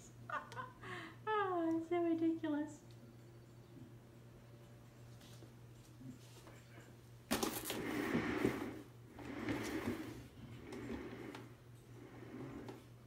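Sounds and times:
cat exercise wheel rumbling: 0:07.3 - 0:13.0.

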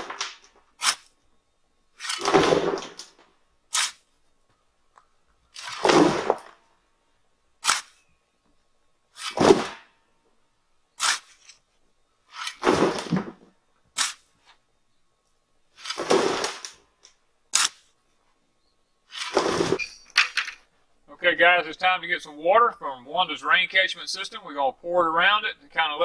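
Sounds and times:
shovel scraping into dirt: 0:00.8 - 0:01.2, 0:02.0 - 0:03.0, 0:03.7 - 0:04.1, 0:05.6 - 0:06.5, 0:07.6 - 0:08.0, 0:09.2 - 0:09.8, 0:11.0 - 0:11.6, 0:12.3 - 0:13.3, 0:13.9 - 0:14.5, 0:15.8 - 0:16.8, 0:17.5 - 0:17.9, 0:19.1 - 0:20.2.

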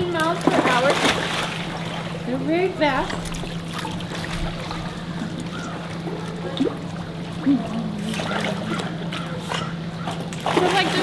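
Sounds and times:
steady low hum: 0:00.0 - 0:11.0
water trickling and lapping: 0:00.0 - 0:11.0.

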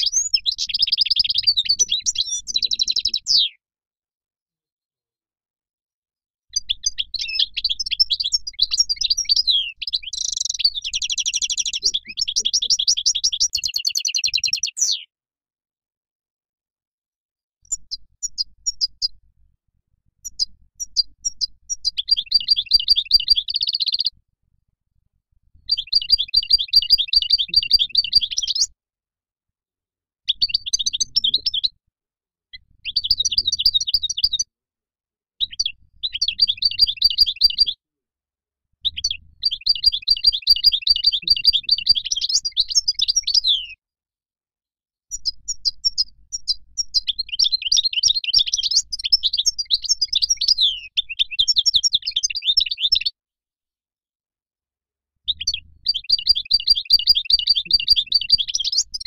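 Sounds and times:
finch singing twittering trills: 0:00.0 - 0:03.5, 0:06.5 - 0:15.0, 0:17.7 - 0:19.2, 0:20.2 - 0:24.1, 0:25.6 - 0:28.7, 0:30.3 - 0:31.7, 0:32.6 - 0:34.4, 0:35.4 - 0:37.8, 0:38.8 - 0:43.8, 0:45.1 - 0:53.1, 0:55.3 - 0:59.0.

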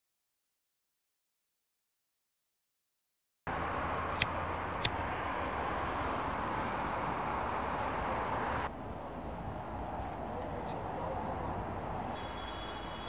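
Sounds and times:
distant city traffic: 0:03.5 - 0:13.0
sharp clicks: 0:04.2 - 0:05.0.

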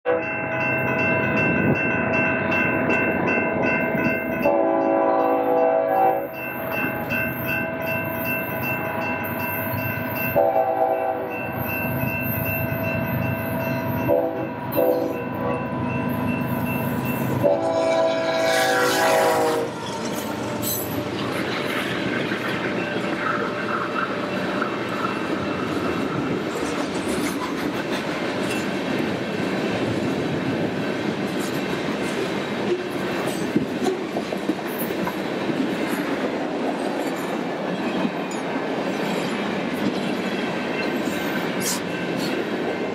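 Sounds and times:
locomotive air horn blasts: 0:00.1 - 0:00.3, 0:04.4 - 0:06.4, 0:10.4 - 0:11.4, 0:14.1 - 0:15.7, 0:17.4 - 0:21.1
wind noise: 0:00.9 - 0:04.5, 0:19.3 - 0:42.9
freight cars rumbling and clattering: 0:19.8 - 0:41.4.

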